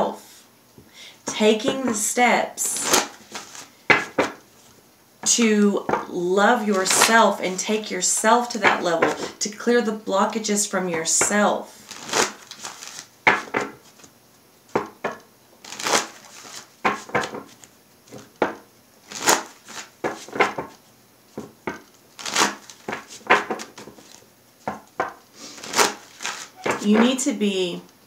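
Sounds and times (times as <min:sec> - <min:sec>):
cards being shuffled: 0:01.7 - 0:04.8, 0:06.7 - 0:07.3, 0:11.0 - 0:14.1, 0:15.6 - 0:27.2.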